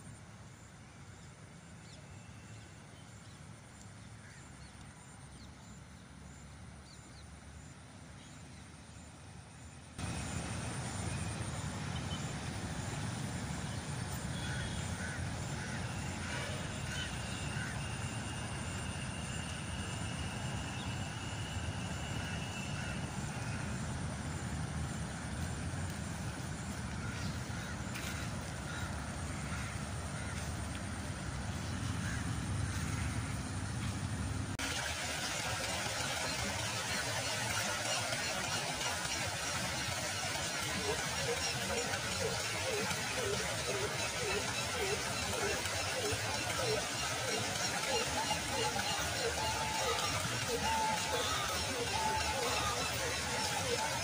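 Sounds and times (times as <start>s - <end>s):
low outdoor rumble: 0.0s - 54.0s
thin steady high tone: 34.7s - 54.0s.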